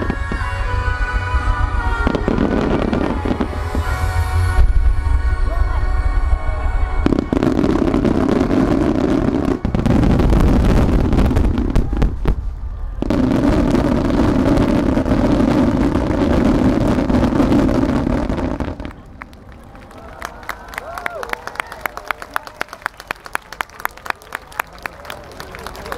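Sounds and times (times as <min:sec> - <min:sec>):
fireworks bursting: 0:00.0 - 0:19.8
sharp fireworks bangs: 0:07.0 - 0:19.2.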